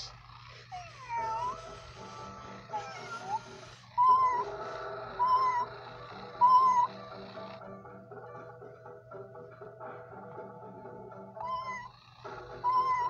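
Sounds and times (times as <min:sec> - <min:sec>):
toy cat meowing: 0:00.7 - 0:07.0, 0:11.4 - 0:13.0.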